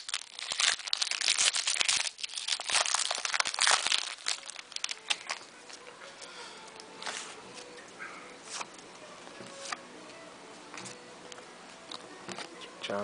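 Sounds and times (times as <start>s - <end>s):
wrapper tearing and crinkling: 0.0s - 5.8s.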